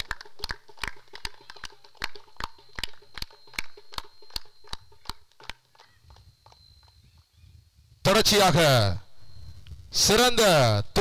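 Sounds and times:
sharp irregular clicks: 0.0 - 7.0
faint steady high tone: 1.1 - 11.0.

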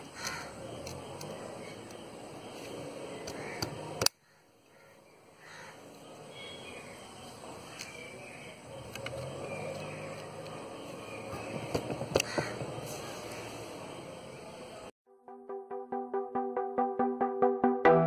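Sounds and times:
faint bird chirps: 4.2 - 11.7.

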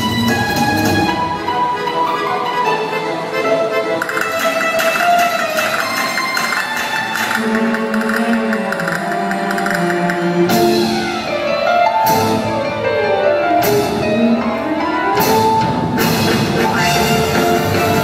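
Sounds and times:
electronic show music: 4.0 - 10.5
gliding tone: 4.0 - 10.8
sharp percussive hits: 4.0 - 10.9.

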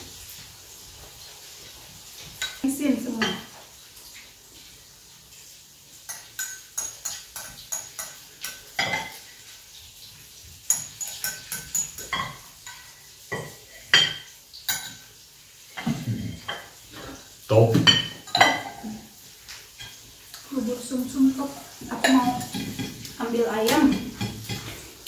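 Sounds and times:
metal spoon clinking in ceramic bowl: 10.7 - 12.4.

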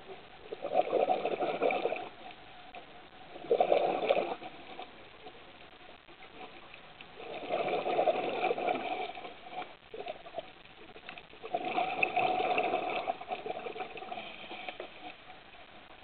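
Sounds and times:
regulator exhaled air bubbles: 0.5 - 2.1, 3.4 - 4.9, 7.2 - 10.2, 11.4 - 15.2.

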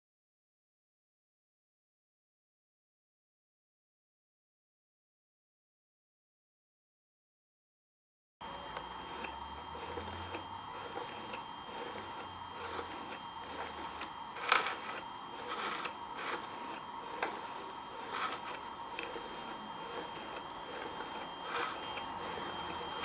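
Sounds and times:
cardboard mechanism rubbing and clicking: 9.2 - 23.0.

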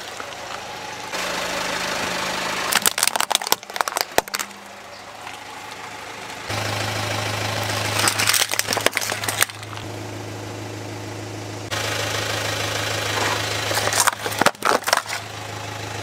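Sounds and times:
car engine idling: 0.0 - 16.0
plastic toys cracking under tyre: 2.7 - 4.6, 7.8 - 9.9, 13.7 - 15.3.

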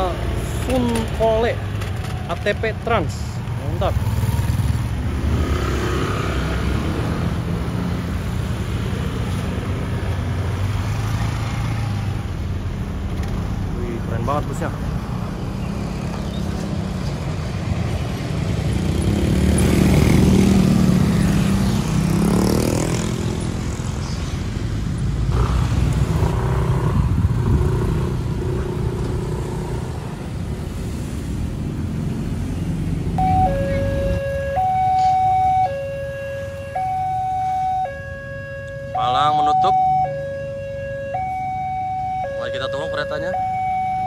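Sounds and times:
motorcycles passing: 0.0 - 44.0
engine revving: 3.6 - 9.6, 18.6 - 23.8, 25.2 - 30.4
coach diesel engine: 30.2 - 44.0
two-tone crossing warning alarm: 33.2 - 44.0.

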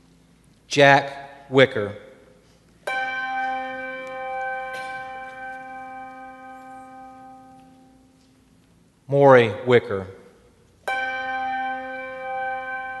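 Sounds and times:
bell ringing: 2.9 - 8.0, 10.9 - 13.0.

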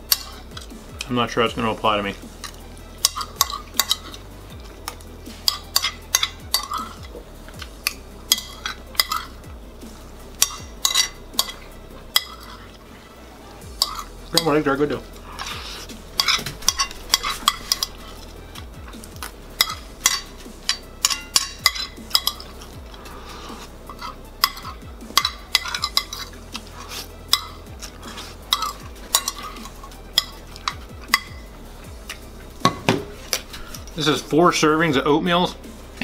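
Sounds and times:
fork scraping a plate: 0.0 - 0.5, 2.4 - 4.2, 4.8 - 7.1, 7.8 - 9.4, 10.4 - 12.8, 13.8 - 14.5, 15.2 - 18.3, 19.6 - 31.5.

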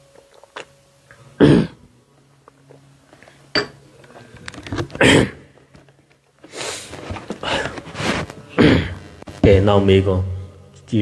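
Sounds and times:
microphone handling rustle: 6.5 - 9.4.

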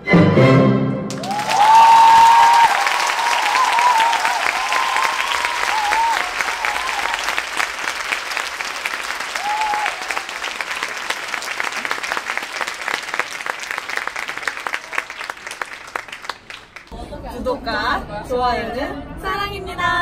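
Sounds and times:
people cheering: 1.1 - 16.9
audience applauding: 1.1 - 17.0.

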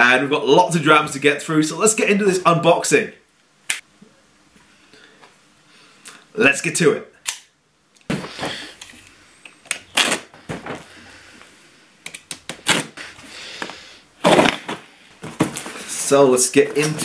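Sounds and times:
box cutter slicing tape: 9.7 - 10.3, 12.5 - 13.0.

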